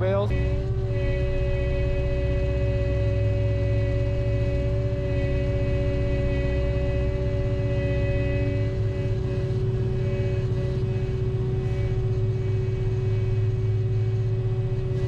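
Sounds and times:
diesel engine rumbling: 0:00.0 - 0:15.0
steady engine whine: 0:00.0 - 0:15.0.

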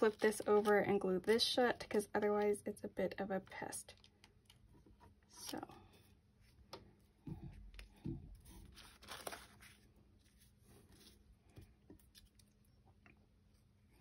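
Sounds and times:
paper filter rustling: 0:00.0 - 0:02.0, 0:07.0 - 0:11.3.

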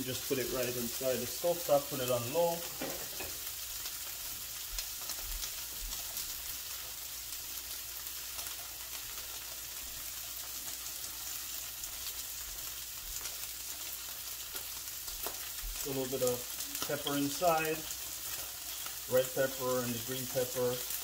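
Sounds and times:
fish sizzling in a skillet: 0:00.0 - 0:21.0
oil pops and crackles: 0:14.4 - 0:16.2.

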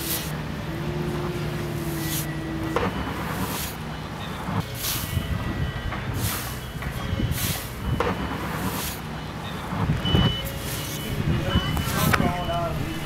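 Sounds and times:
fire engine idling: 0:10.4 - 0:13.0.

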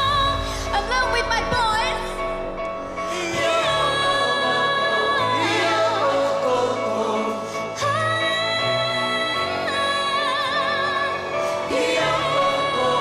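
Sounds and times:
band playing pop music: 0:00.0 - 0:13.0
woman and men singing: 0:03.0 - 0:08.8, 0:11.5 - 0:13.0.

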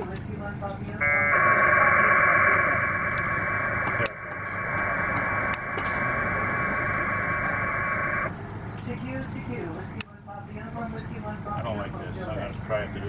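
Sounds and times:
two-tone modem warble: 0:01.0 - 0:08.3.

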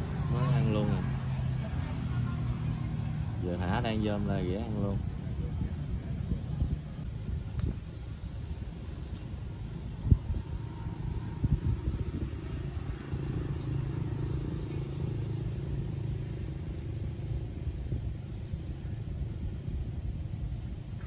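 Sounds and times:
distant engine rumble: 0:00.0 - 0:21.0.

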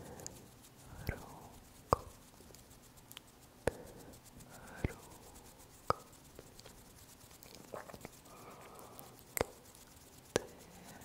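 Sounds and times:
faint breathy whispering: 0:00.0 - 0:01.7, 0:03.7 - 0:05.7, 0:07.4 - 0:11.0.

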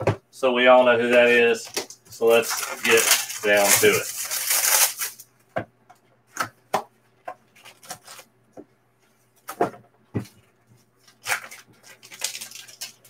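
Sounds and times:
plastic wrapper crinkling: 0:01.0 - 0:05.3, 0:07.5 - 0:08.3, 0:11.0 - 0:13.0.

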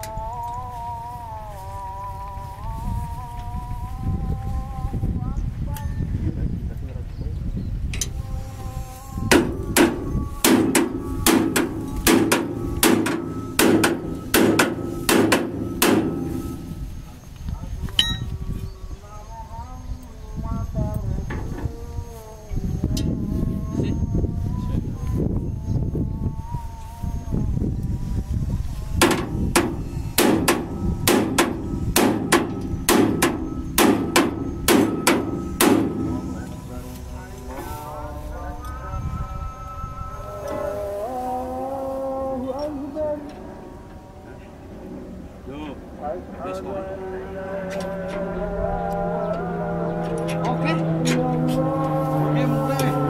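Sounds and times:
hammer striking steel: 0:09.3 - 0:16.8, 0:18.0 - 0:18.3, 0:29.0 - 0:36.5.

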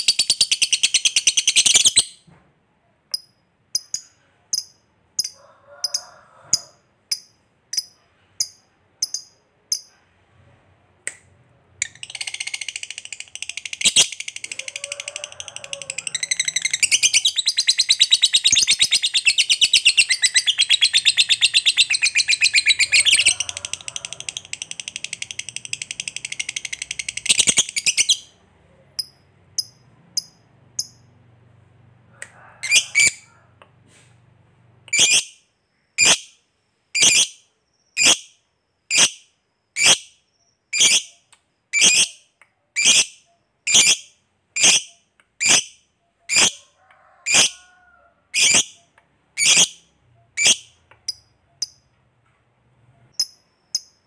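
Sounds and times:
lovebird chattering trill: 0:15.9 - 0:28.3, 0:48.4 - 0:48.7
bird chirps: 0:16.0 - 0:23.5.

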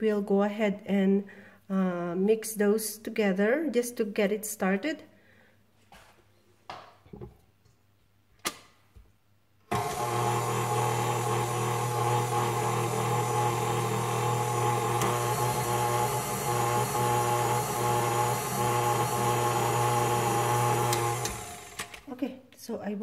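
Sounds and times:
stand mixer motor hum: 0:09.7 - 0:22.1.

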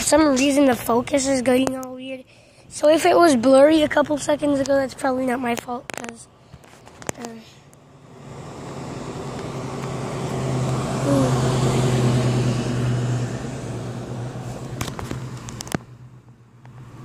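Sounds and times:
car driving past: 0:07.8 - 0:17.0.

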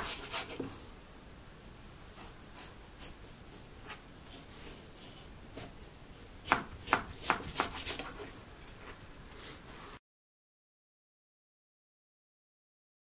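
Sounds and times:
knife slicing potato: 0:06.4 - 0:08.3.

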